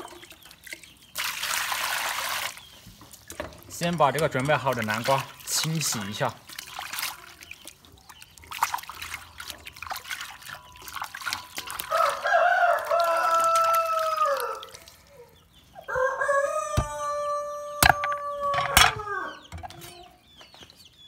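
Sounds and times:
water splashing in a steel basin: 0:00.0 - 0:15.1
rooster crowing: 0:11.9 - 0:14.8, 0:15.9 - 0:19.4.

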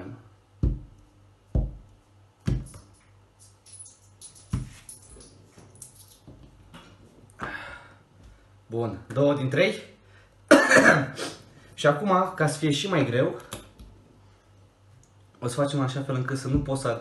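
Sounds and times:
fist knocking on a table: 0:00.6 - 0:01.0, 0:01.6 - 0:01.9, 0:02.5 - 0:02.8
coins clinking: 0:02.7 - 0:06.3.

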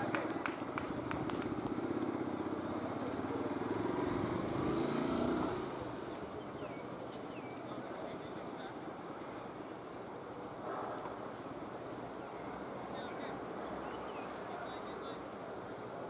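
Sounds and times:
vehicle engine passing: 0:00.0 - 0:07.9.

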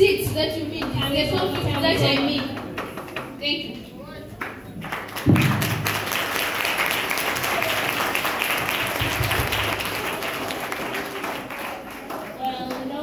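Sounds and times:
students applauding: 0:04.4 - 0:13.0.

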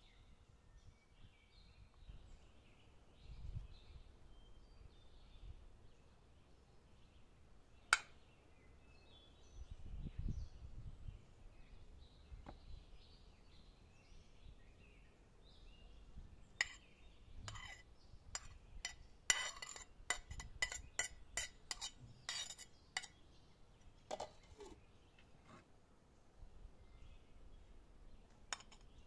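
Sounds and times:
metal spoon scraping porcelain plate: 0:16.6 - 0:23.2.

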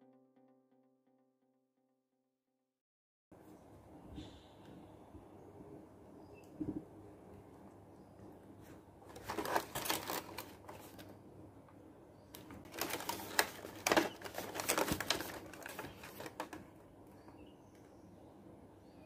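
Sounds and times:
cardboard box crinkling and tapping: 0:09.1 - 0:11.0, 0:12.4 - 0:16.6.

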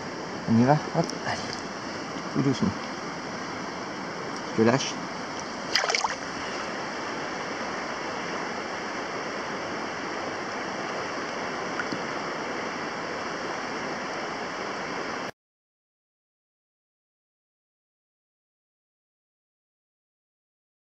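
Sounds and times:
river water running over gravel: 0:00.1 - 0:14.0.

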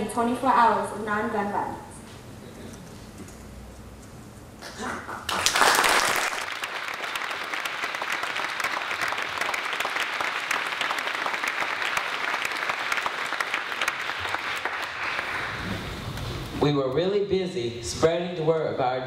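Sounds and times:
audience applauding: 0:05.1 - 0:16.1.

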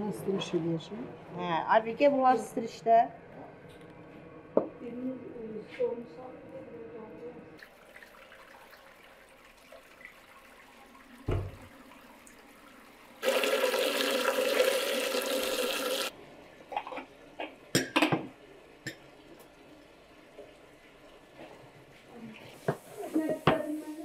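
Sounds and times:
water pouring into metal pot: 0:07.6 - 0:12.6, 0:13.2 - 0:16.1.

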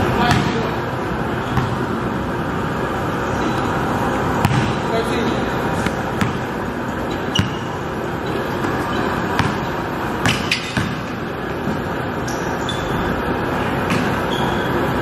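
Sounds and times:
basketball bouncing on gym floor: 0:00.2 - 0:00.8, 0:01.4 - 0:02.0, 0:04.4 - 0:04.9, 0:05.7 - 0:13.0, 0:13.8 - 0:14.8.

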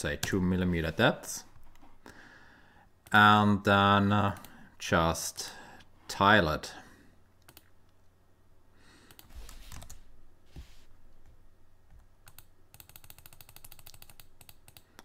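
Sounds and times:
keyboard and mouse clicks: 0:07.4 - 0:07.8, 0:11.9 - 0:15.0.

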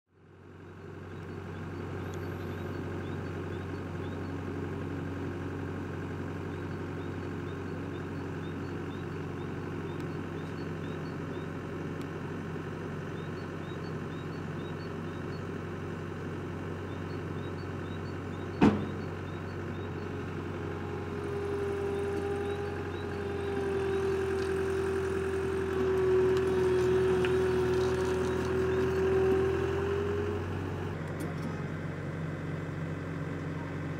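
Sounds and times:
diesel engine running: 0:00.1 - 0:33.9
sharp knock: 0:18.6 - 0:19.0.

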